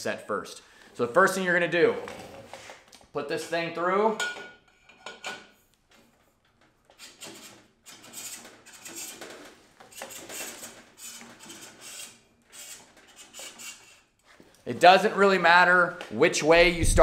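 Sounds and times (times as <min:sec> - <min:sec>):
axle scraping and rattling in bearings: 0:06.9 - 0:14.3.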